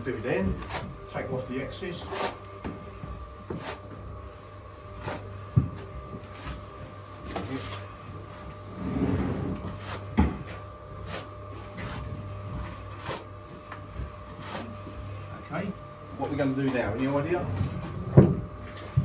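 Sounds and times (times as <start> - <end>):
trowel scraping plaster: 2.0 - 2.4, 9.2 - 10.1, 11.0 - 12.1, 12.9 - 13.3, 14.4 - 14.7.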